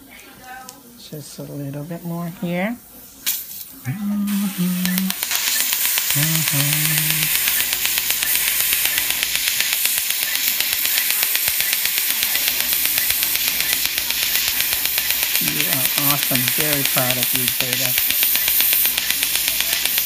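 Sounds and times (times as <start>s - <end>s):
water spray hiss: 4.3s - 20.0s
rapid popping clicks of dental laser: 4.8s - 20.0s.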